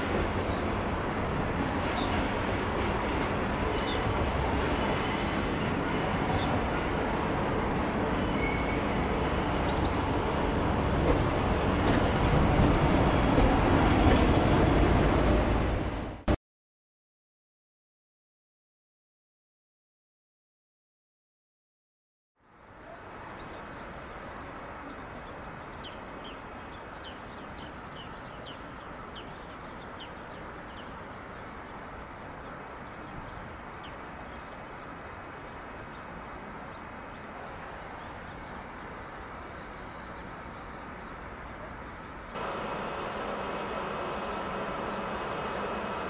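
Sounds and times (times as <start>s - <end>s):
electric locomotive humming: 42.4s - 46.0s.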